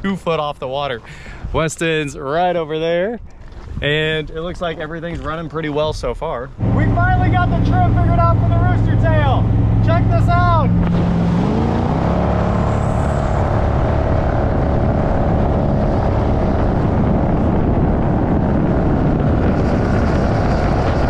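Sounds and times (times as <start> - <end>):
wind: 0.0 - 21.0
boat engine running steadily: 6.5 - 21.0
rush of water spray: 10.6 - 16.2.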